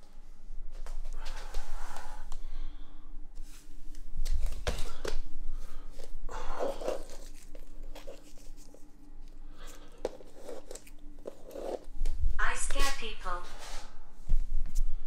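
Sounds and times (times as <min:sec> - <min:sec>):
close rustling and handling: 0:05.9 - 0:12.2.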